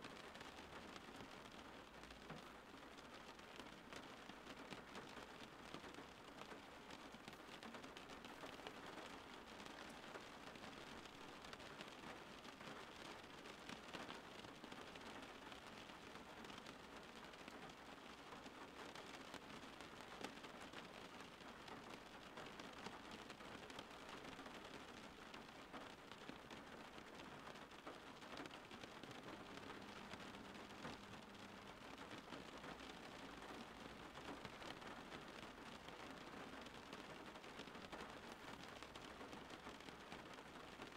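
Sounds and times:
faint steady rain: 0.0 - 40.9.

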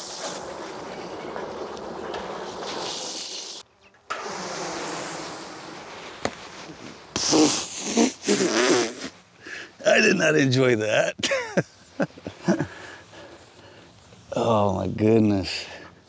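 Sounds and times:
bee swarm buzzing: 0.0 - 9.3.

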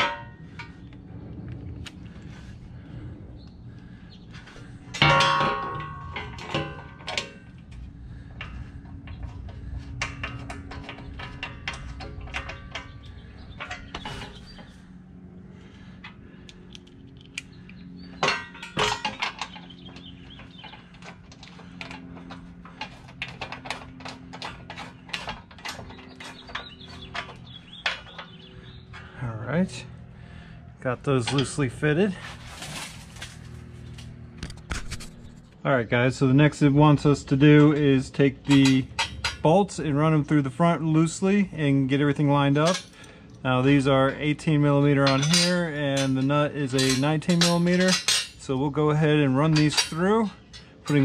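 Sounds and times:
loud ringing metal clanks: 0.0 - 0.9, 4.4 - 14.9, 18.0 - 29.2, 37.3 - 40.3, 42.3 - 51.0
metal tools clanking on frame: 0.0 - 0.9, 4.3 - 14.8, 18.0 - 29.2, 31.0 - 34.0, 36.4 - 41.2, 41.9 - 51.0.

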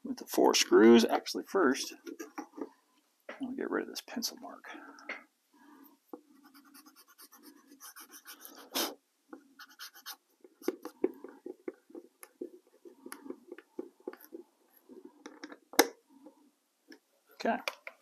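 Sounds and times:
eraser rubbing: 6.4 - 9.0, 9.6 - 11.0.

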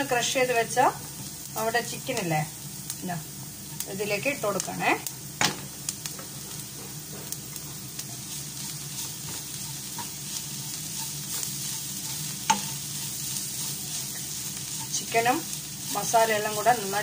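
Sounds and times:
food sizzling in a hot pan: 0.0 - 17.0
wooden spatula scraping: 6.5 - 17.0.

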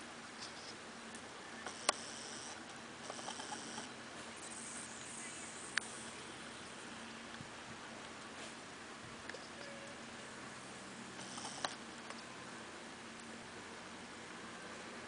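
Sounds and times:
sharp clicks: 11.2 - 12.2.

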